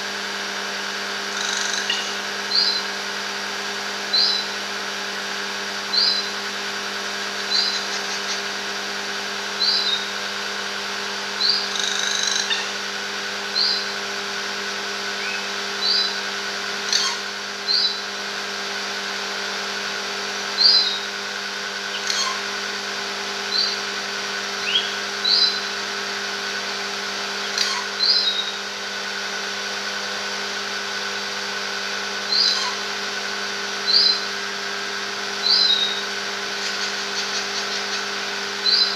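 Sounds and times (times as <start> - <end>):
steady mechanical hum: 0.0 - 38.9
bird short high calls: 7.5 - 8.5, 32.3 - 32.8.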